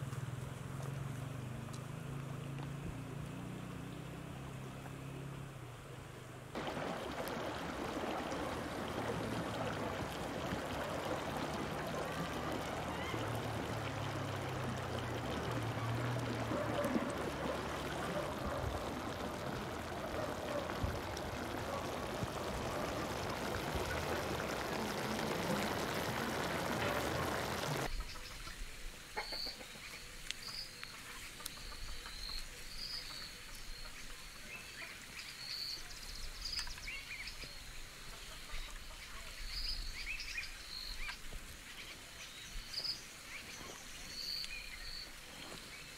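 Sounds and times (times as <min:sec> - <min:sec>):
fire crackles: 0:06.5 - 0:27.9.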